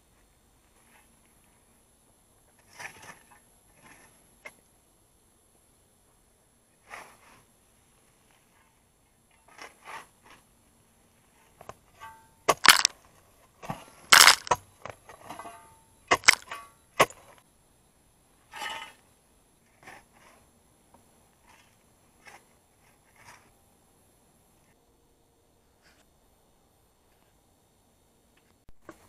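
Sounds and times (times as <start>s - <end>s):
shovel digging into stony soil: 12.1s - 12.9s, 14.1s - 14.6s, 16.1s - 17.2s
earth and stones thrown: 12.5s - 12.9s, 13.7s - 14.6s, 15.3s - 17.2s.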